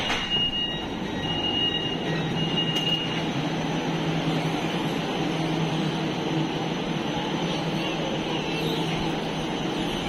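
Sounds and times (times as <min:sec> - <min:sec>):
high door warning beeps: 0:00.0 - 0:03.3
low train hum: 0:00.0 - 0:10.0
train rumble: 0:00.0 - 0:10.0.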